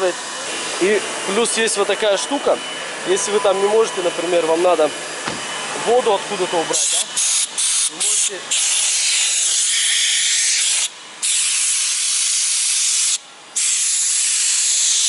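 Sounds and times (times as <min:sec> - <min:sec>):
compressed-air blow gun hissing: 0:06.8 - 0:15.0.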